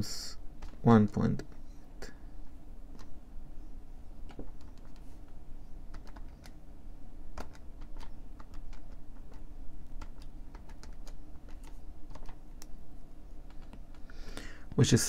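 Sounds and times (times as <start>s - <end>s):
low steady hum: 0.0s - 15.0s
keys typing clicks: 5.9s - 6.6s, 7.3s - 12.4s.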